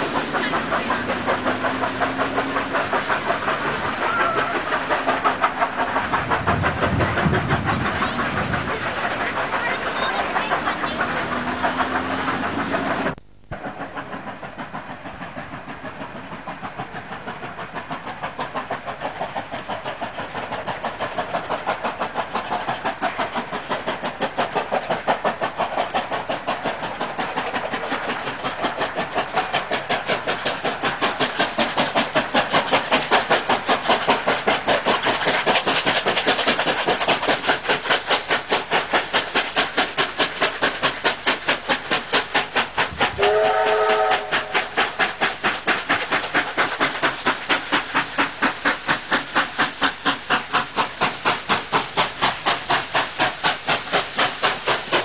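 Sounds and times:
steam locomotive exhaust beat: 0:00.0 - 0:55.0
steam whistle blast: 0:43.2 - 0:44.6.

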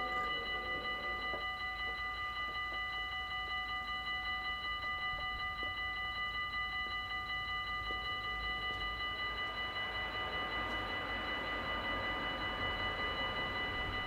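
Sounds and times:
level crossing bell ringing: 0:00.0 - 0:14.0
train rushing: 0:08.6 - 0:14.0.

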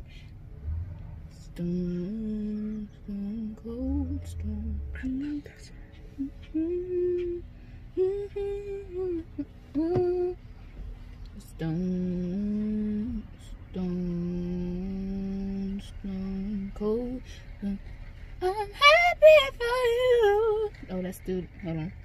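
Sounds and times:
woman humming a slow melody: 0:01.4 - 0:10.4.

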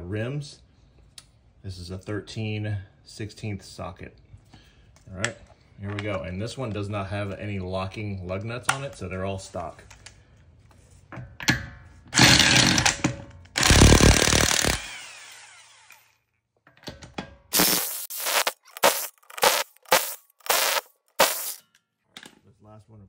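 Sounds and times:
air impact wrench hammering: 0:13.6 - 0:15.4, 0:17.5 - 0:21.6.

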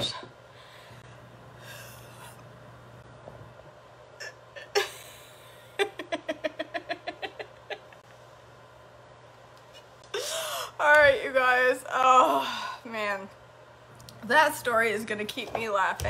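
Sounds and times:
woman laughing hard: 0:04.7 - 0:08.0.

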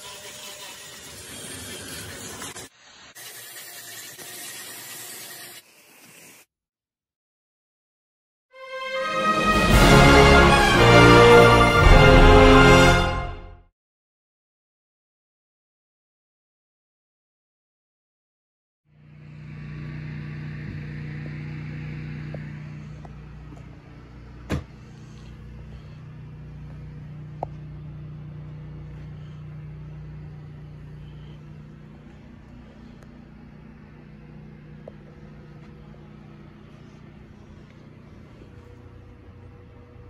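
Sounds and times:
hiss: 0:00.0 - 0:06.5
low mechanical hum: 0:18.9 - 0:40.0.

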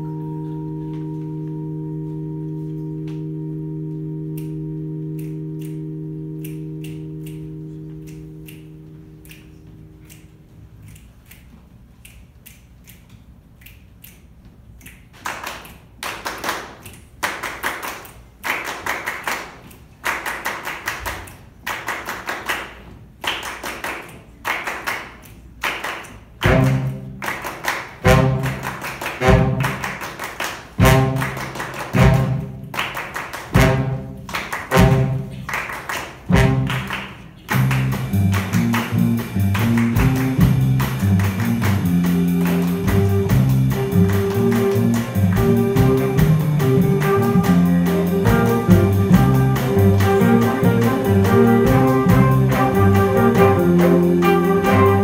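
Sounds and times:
jazz big band playing: 0:00.0 - 0:10.6, 0:26.4 - 0:55.0
accented band hits: 0:26.4 - 0:30.1, 0:30.8 - 0:32.8, 0:33.5 - 0:35.5, 0:36.2 - 0:55.0
drum groove: 0:37.5 - 0:55.0.

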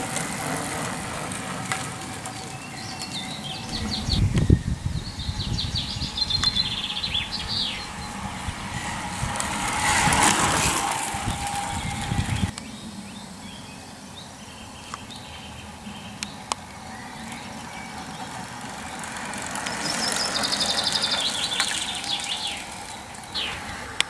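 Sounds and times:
birds chirping: 0:00.0 - 0:24.0
racing bicycle passing: 0:00.0 - 0:24.0
bird trill: 0:02.4 - 0:08.5, 0:11.2 - 0:24.0.

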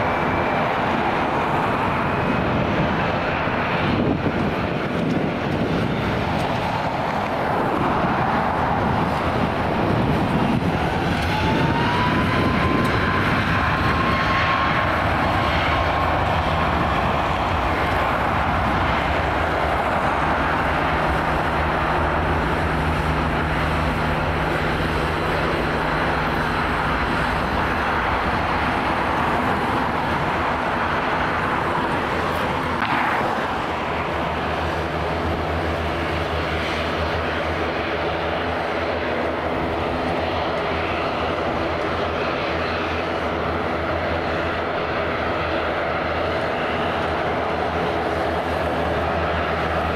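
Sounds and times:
jet engines roaring: 0:00.0 - 0:49.9
jet fan whine: 0:00.0 - 0:49.9.

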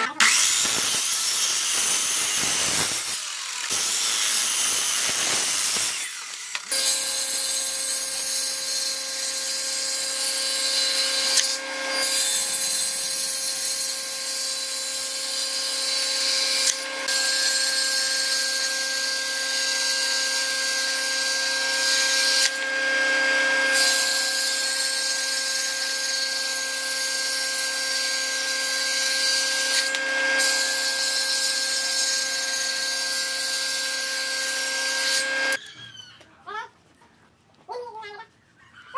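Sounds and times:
miter saw cutting wood: 0:00.0 - 0:35.6.

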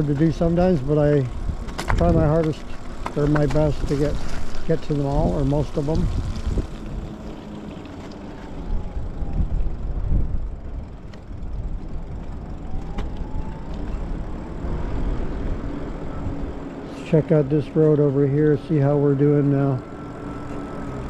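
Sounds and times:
wind rumble on microphone: 0:00.0 - 0:16.8
faint motor whine: 0:00.0 - 0:21.0
tyre noise on wet pavement: 0:00.0 - 0:21.0.

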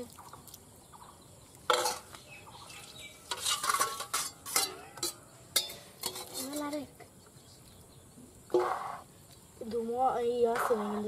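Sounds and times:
metal ladle clinking on pan: 0:03.3 - 0:06.6.

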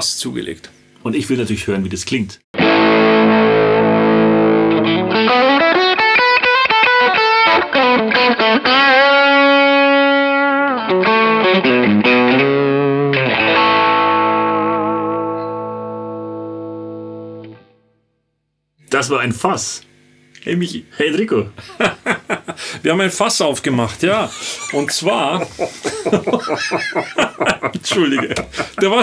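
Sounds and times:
distorted electric guitar: 0:02.6 - 0:17.8.

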